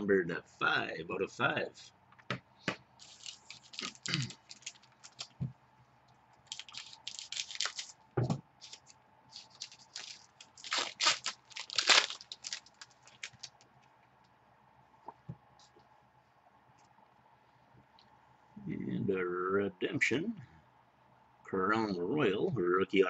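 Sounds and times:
foil wrapper tearing and crinkling: 0:03.0 - 0:05.4, 0:06.4 - 0:08.0, 0:08.6 - 0:13.6.

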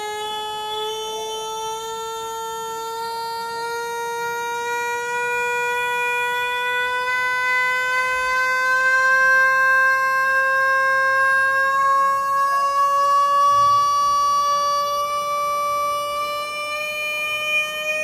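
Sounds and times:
electronic tone rising in pitch: 0:00.0 - 0:18.0.

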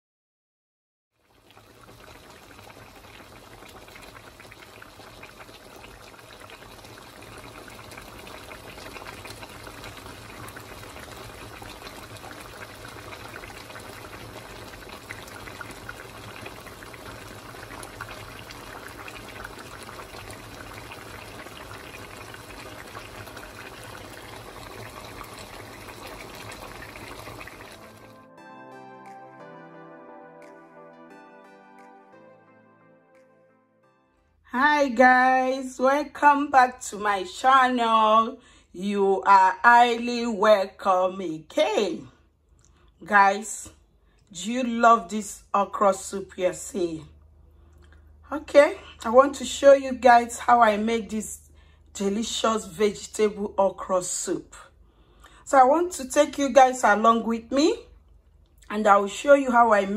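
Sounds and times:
soup bubbling in a pot: 0:01.2 - 0:28.1.

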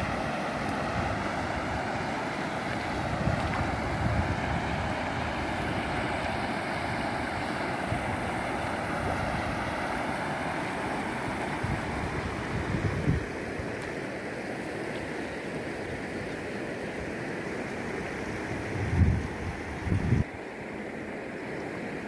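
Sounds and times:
stream water rushing: 0:00.0 - 0:22.0
wind buffeting microphone: 0:02.7 - 0:09.7, 0:11.6 - 0:13.4, 0:18.6 - 0:20.3.

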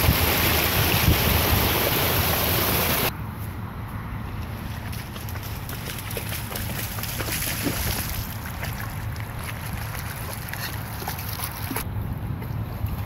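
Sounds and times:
floodwater flowing: 0:00.0 - 0:03.1, 0:05.2 - 0:11.8
wind rumbling on microphone: 0:00.0 - 0:03.1
small splashes: 0:04.8 - 0:11.8.

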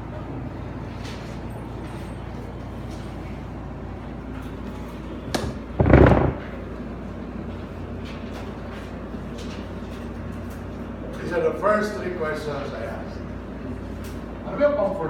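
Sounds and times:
steady room hum: 0:00.0 - 0:15.0
heavy thump: 0:05.3 - 0:06.6.

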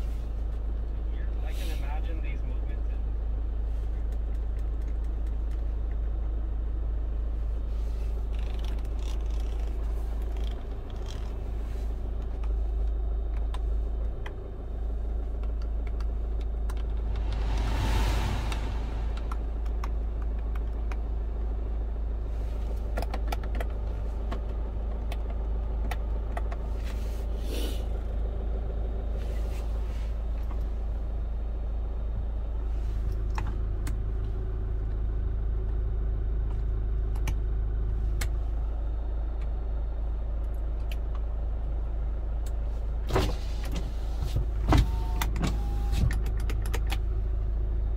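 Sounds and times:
rush of noise: 0:16.7 - 0:20.4.

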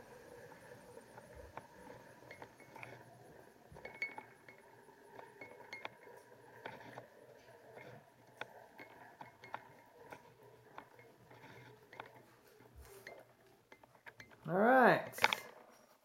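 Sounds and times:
light clicks and metallic clinks: 0:00.5 - 0:16.0.

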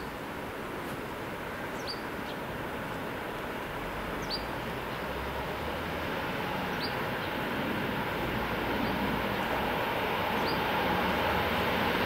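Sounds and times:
bird chirping: 0:01.8 - 0:02.4, 0:04.2 - 0:05.1, 0:10.4 - 0:10.7
train wheels on rail: 0:05.3 - 0:12.0.

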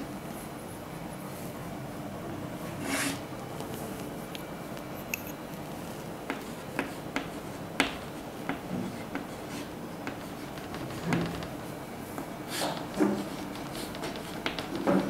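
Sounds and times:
chalk tapping on chalkboard: 0:06.3 - 0:11.6, 0:12.2 - 0:15.0.

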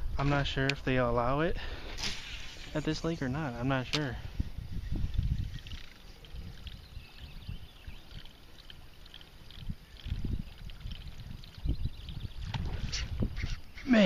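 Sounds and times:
fishing lure gurgling on water: 0:04.6 - 0:13.5.

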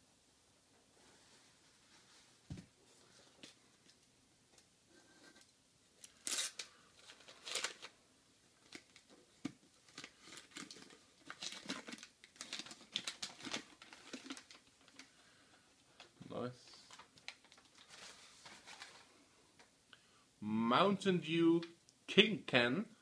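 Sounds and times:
packing material rustling and tearing: 0:06.0 - 0:08.0, 0:08.6 - 0:15.1, 0:16.0 - 0:19.1.

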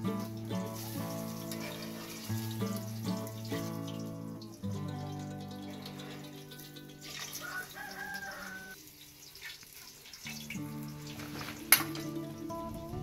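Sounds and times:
background music with held notes: 0:00.0 - 0:08.8, 0:10.3 - 0:13.0
vegetables frying in oil: 0:00.0 - 0:13.0
rooster crowing: 0:06.4 - 0:08.8.

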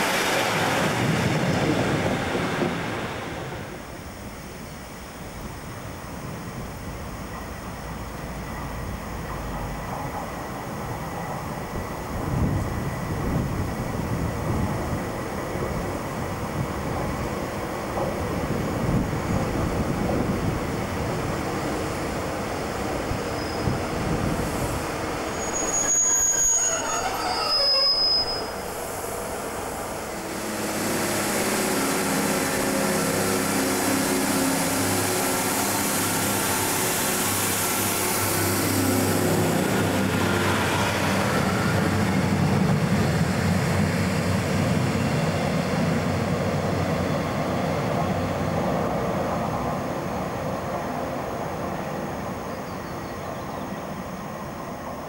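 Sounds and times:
train diesel engines running: 0:00.0 - 0:55.0
train wheels and brakes squealing: 0:23.1 - 0:48.6.

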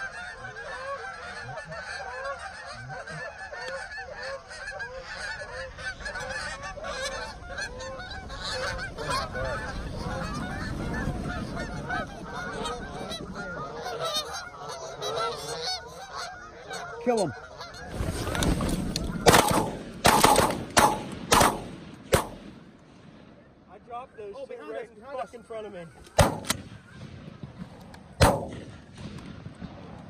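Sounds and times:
geese honking: 0:00.0 - 0:22.8, 0:23.4 - 0:29.0.

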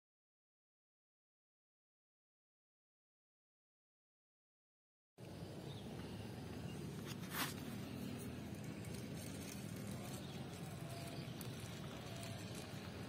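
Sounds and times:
steady low rumble: 0:05.2 - 0:13.0
brief rustle: 0:07.0 - 0:10.7.

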